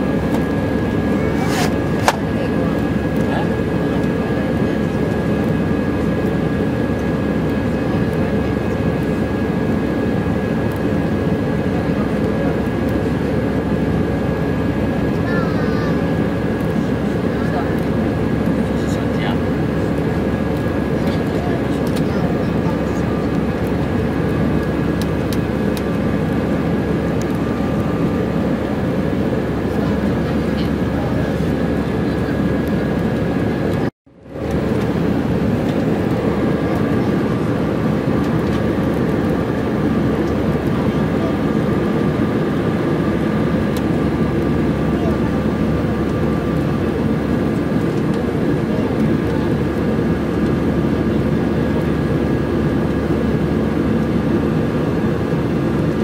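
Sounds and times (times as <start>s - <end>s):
airplane cabin roar: 0.0s - 56.0s.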